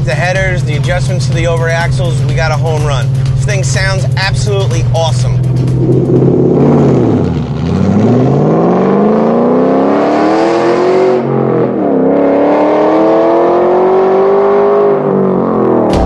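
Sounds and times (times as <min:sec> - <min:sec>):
car engine accelerating: 0:00.0 - 0:16.0.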